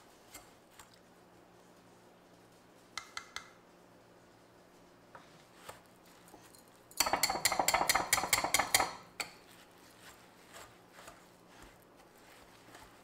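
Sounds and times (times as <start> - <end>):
whisk clinking against glass bowl: 7.0 - 9.4.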